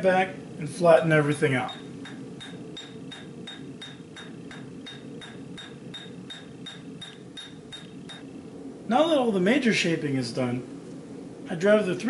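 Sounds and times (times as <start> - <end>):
hammer striking hot steel on anvil: 1.7 - 8.3.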